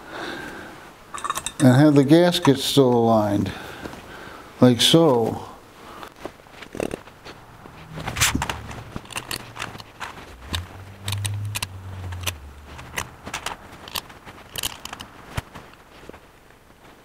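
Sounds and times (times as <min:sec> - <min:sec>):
small metal parts clicking: 0:01.1 - 0:01.8, 0:08.2 - 0:15.2
low rubbing rumble: 0:06.8 - 0:15.0.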